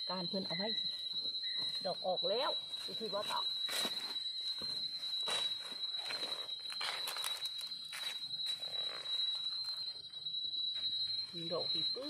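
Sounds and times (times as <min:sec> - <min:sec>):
steady high-pitched whine: 0:00.0 - 0:12.0
footsteps crunching dry leaves: 0:02.6 - 0:09.4.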